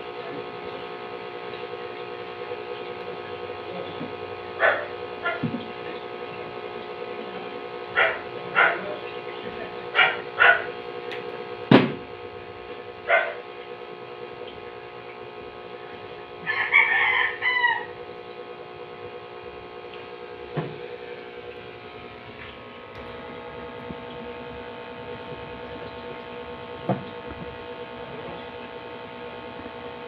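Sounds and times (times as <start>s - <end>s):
background hum: 0.0s - 30.0s
rooster crowing: 16.4s - 18.0s.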